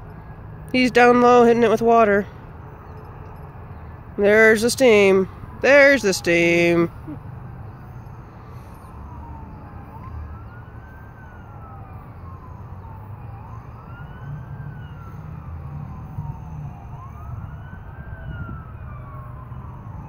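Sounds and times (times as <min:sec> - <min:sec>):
siren wailing faintly: 0:04.2 - 0:20.0.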